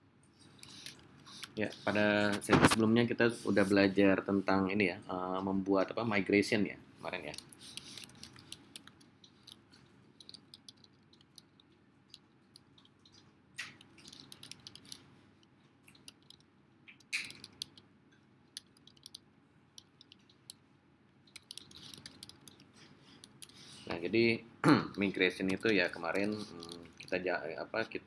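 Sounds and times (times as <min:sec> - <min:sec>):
typing on keyboard: 0:10.2 - 0:15.0, 0:15.9 - 0:17.8, 0:18.6 - 0:19.2, 0:21.3 - 0:22.7.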